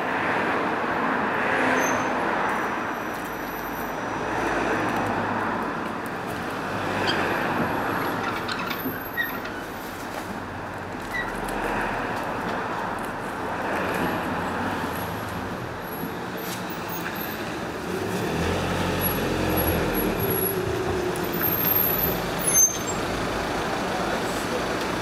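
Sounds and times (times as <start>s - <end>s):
road traffic noise: 0.0s - 25.0s
vehicle engine hum: 5.0s - 25.0s.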